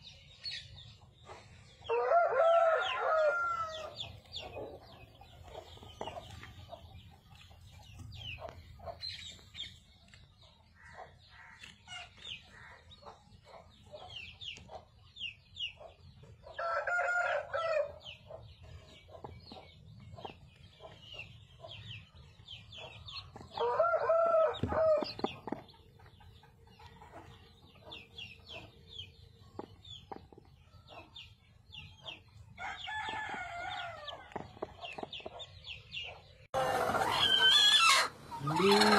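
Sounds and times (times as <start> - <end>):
chicks peeping: 0.0 - 38.9
rooster crowing: 1.9 - 4.0, 16.6 - 17.9, 23.6 - 25.0.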